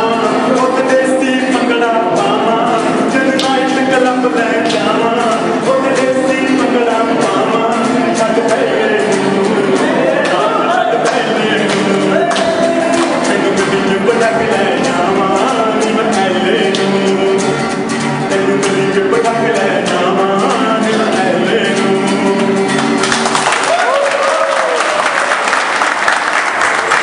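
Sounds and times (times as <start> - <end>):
men singing: 0.0 - 23.0
strummed acoustic guitar: 0.0 - 23.5
people clapping: 3.4 - 3.8, 9.8 - 13.7, 22.7 - 27.0
people whooping: 23.4 - 27.0.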